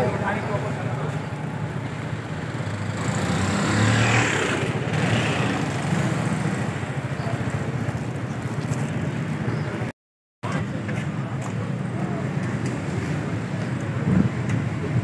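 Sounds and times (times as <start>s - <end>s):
street noise: 0.0s - 15.0s.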